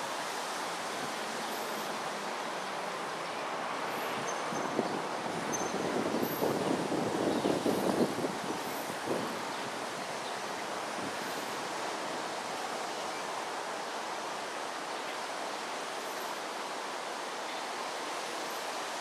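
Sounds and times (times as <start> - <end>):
steady hiss: 0.0 - 19.0
gusty wind rumble: 4.1 - 10.2.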